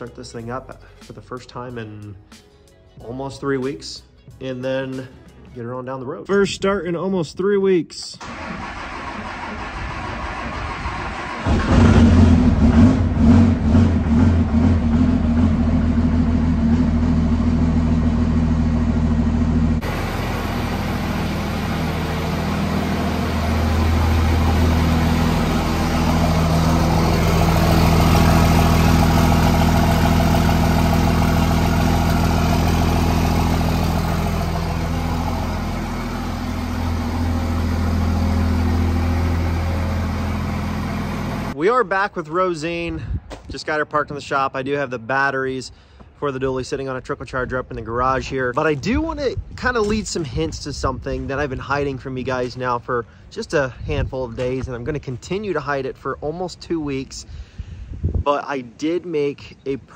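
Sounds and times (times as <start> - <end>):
diesel engine idling: 8.2 - 41.6.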